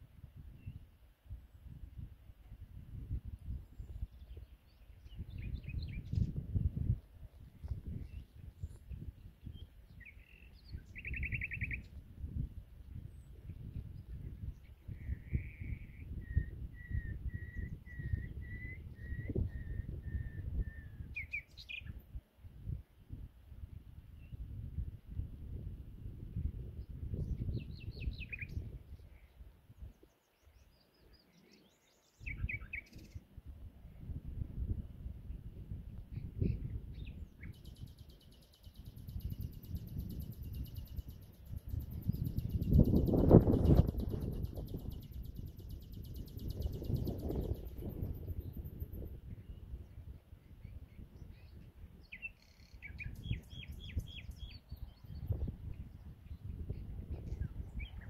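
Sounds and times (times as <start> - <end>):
wind rumble on microphone: 0.0 - 58.0
nightingale singing: 3.7 - 6.9, 7.7 - 12.0, 13.0 - 22.0, 27.1 - 33.3, 36.1 - 49.9, 50.6 - 58.0.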